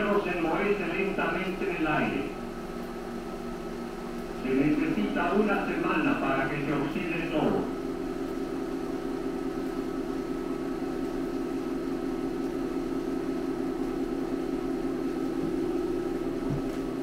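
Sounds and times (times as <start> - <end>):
film projector humming: 0.0 - 17.0.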